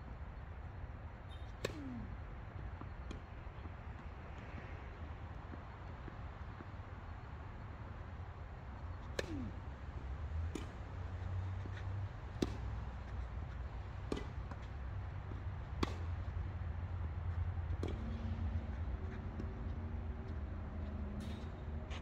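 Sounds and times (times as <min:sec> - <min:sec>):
tennis ball struck by rackets: 0:01.3 - 0:04.0, 0:09.0 - 0:17.0, 0:17.7 - 0:18.3.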